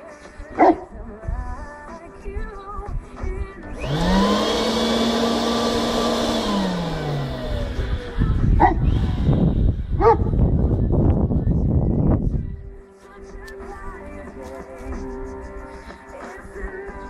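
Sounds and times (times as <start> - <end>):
leaf blower motor whine: 3.6 - 10.8.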